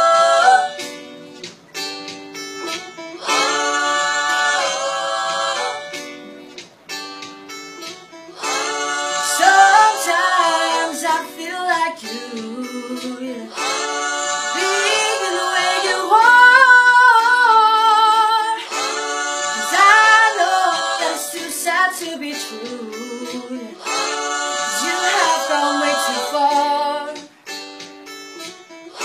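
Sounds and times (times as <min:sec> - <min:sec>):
acoustic guitar: 0:00.0 - 0:29.0
person singing: 0:09.2 - 0:27.3.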